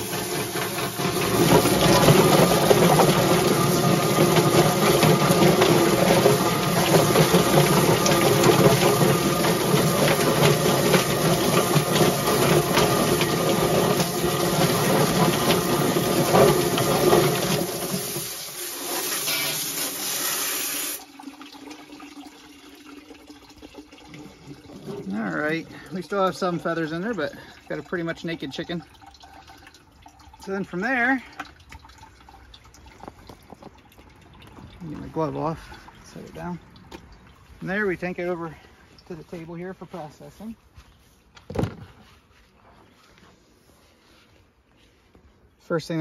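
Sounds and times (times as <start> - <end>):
chicken plucker motor spinning: 0.0 - 21.0
hose spraying water: 0.0 - 21.1.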